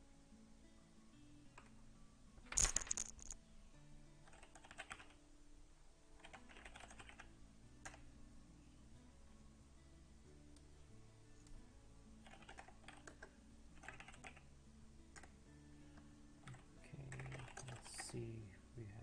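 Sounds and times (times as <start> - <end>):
keyboard keystrokes: 4.3 - 5.2, 6.2 - 8.0, 12.2 - 14.4, 16.4 - 18.1.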